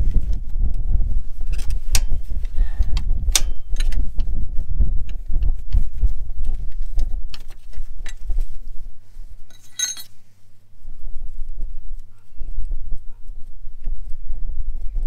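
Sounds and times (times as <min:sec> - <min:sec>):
tools clinking against metal: 0:09.5 - 0:10.1.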